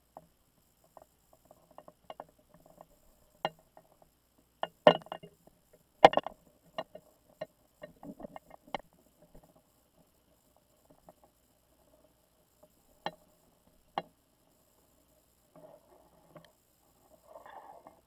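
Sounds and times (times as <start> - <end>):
underwater clicks and knocks: 0.9 - 4.0, 4.6 - 9.6.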